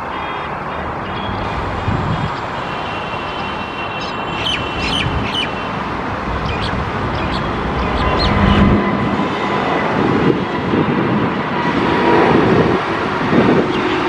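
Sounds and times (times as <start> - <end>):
jet engines roaring: 0.0 - 14.0
bird chirps: 3.3 - 5.7, 6.4 - 8.7.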